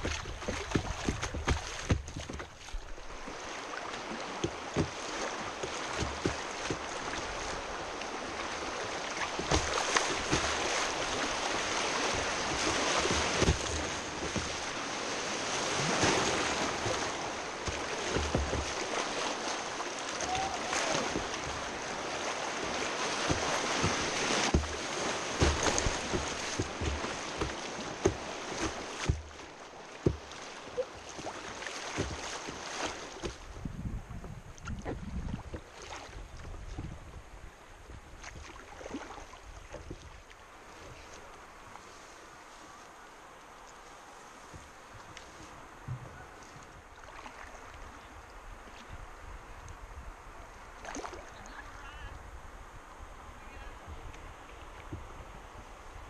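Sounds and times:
splashes and knocks on hull: 0.0 - 37.1, 37.9 - 40.4, 50.8 - 51.6
river water rushing over rocks: 2.8 - 33.2.

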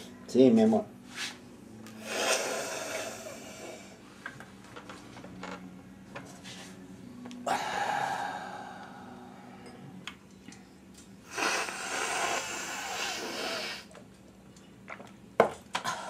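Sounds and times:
man snorting through nose: 2.0 - 3.8, 11.3 - 13.9.

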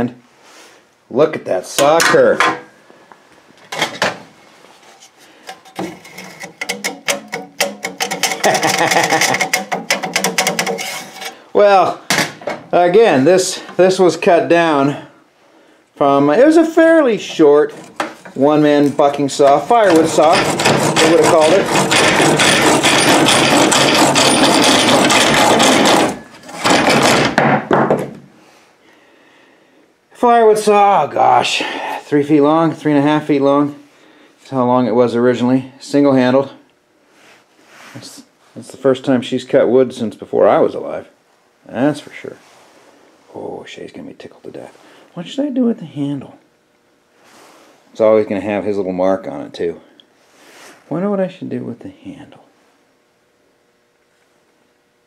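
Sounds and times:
hand saw cutting wood: 5.5 - 11.4, 17.2 - 27.3.

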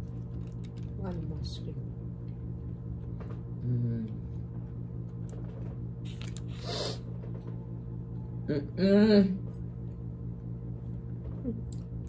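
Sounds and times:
steady low hum: 0.0 - 12.0
person humming mm: 3.6 - 4.2
breathy hiss: 6.5 - 7.0.

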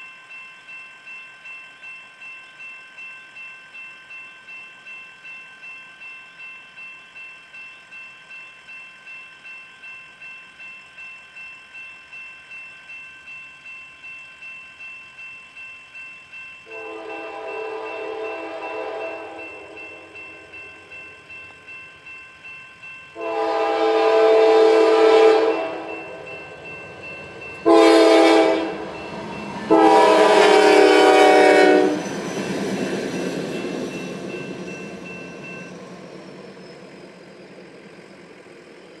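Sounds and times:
railroad crossing bell dinging: 0.0 - 39.0
train wheels rumbling: 5.3 - 39.0
locomotive air horn blasts: 16.7 - 19.4, 23.2 - 25.9, 27.6 - 28.8, 29.7 - 32.0.

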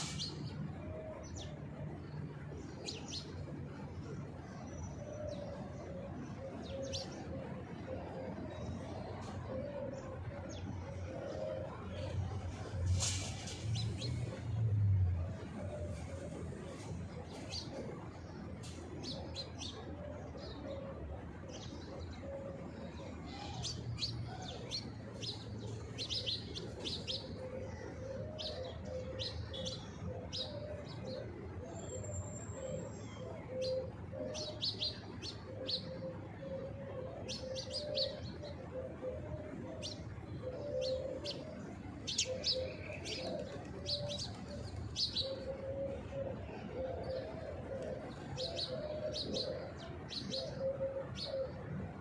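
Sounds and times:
pigeon cooing: 4.9 - 14.4, 22.2 - 51.9
small birds chirping: 16.7 - 51.7.

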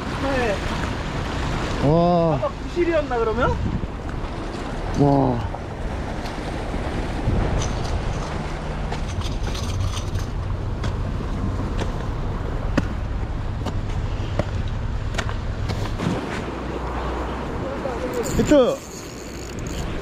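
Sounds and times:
sea: 0.0 - 20.0
wind on microphone: 3.4 - 12.5.

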